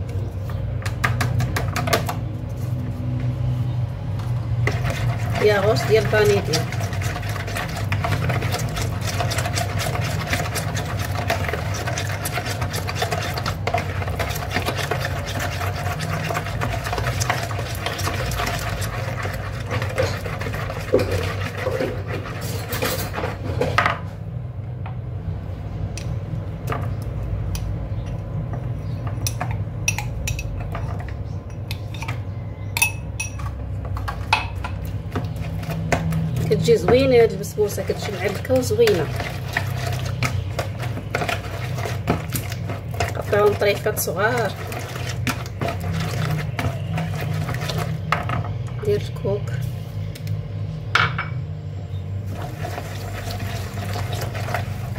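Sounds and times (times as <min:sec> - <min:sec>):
whisk beating batter in bowl: 0:04.2 - 0:23.5, 0:34.0 - 0:49.1, 0:52.3 - 0:54.9.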